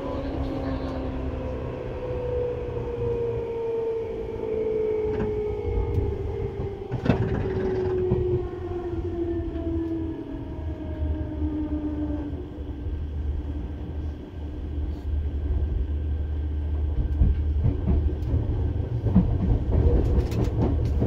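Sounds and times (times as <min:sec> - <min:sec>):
wheels rumbling on rail: 0:00.0 - 0:21.0.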